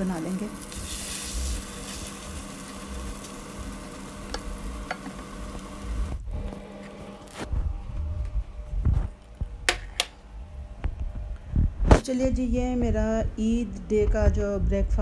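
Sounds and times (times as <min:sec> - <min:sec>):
omelette sizzling in a pan: 0:00.0 - 0:06.2.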